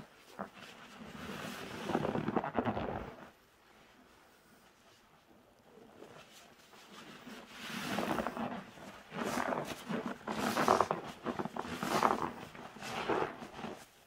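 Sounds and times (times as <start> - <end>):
foam sponge squelching: 5.8 - 14.0.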